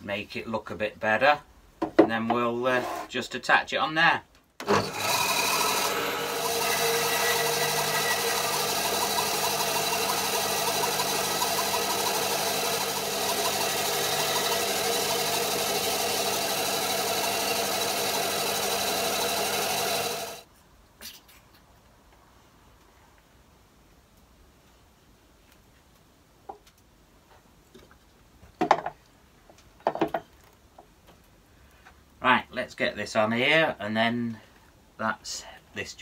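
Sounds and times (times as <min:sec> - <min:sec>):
bandsaw cutting wood: 0:04.6 - 0:20.4.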